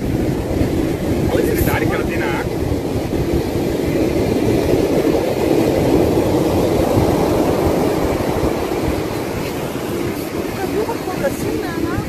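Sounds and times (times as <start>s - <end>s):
beach surf breaking: 0.0s - 12.0s
wind buffeting microphone: 0.0s - 12.0s.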